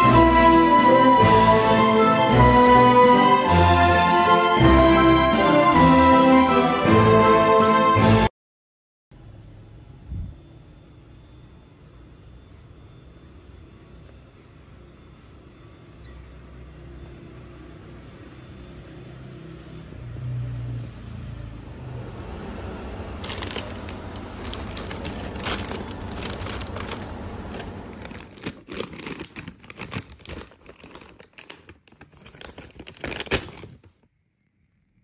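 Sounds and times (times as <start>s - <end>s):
chip bags crinkling: 23.2s - 34.1s.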